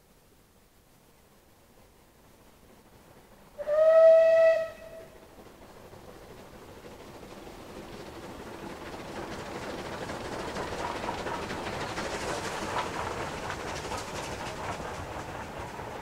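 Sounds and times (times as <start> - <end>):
steam locomotive exhaust beats: 0.9 - 16.0
train coaches rolling by: 1.2 - 16.0.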